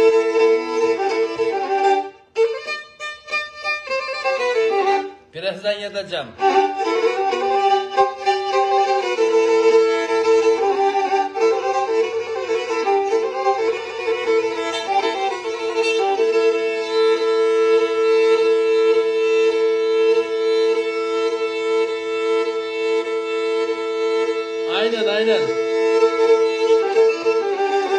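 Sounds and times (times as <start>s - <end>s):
bowed string melody: 0.0s - 5.3s, 6.1s - 27.9s.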